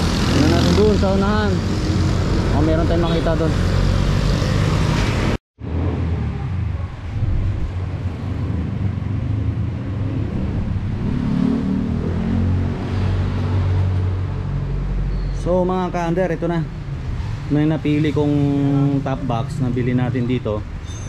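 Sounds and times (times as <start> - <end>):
scooter riding in traffic: 0.0 - 15.5.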